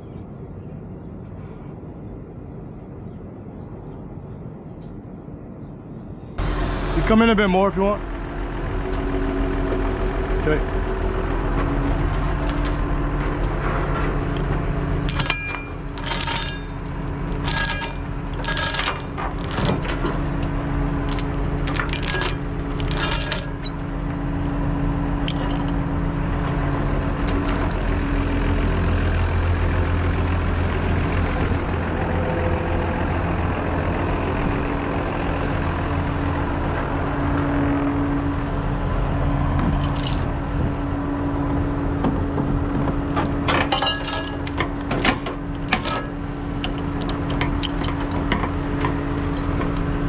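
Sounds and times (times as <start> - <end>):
chain clanking on metal: 12.0 - 12.9, 13.8 - 24.4, 25.2 - 26.0, 39.7 - 40.3, 43.1 - 49.0.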